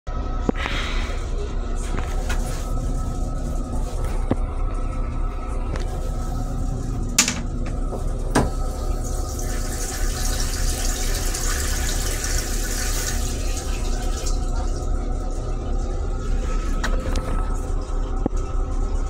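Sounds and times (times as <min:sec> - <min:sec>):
toilet mechanism click: 0:07.2 - 0:07.5.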